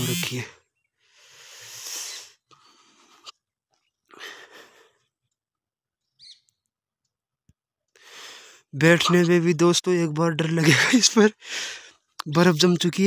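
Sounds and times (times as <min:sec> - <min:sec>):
person breathing softly: 0:01.0 - 0:03.3, 0:04.1 - 0:05.1, 0:08.0 - 0:08.7, 0:11.4 - 0:12.1.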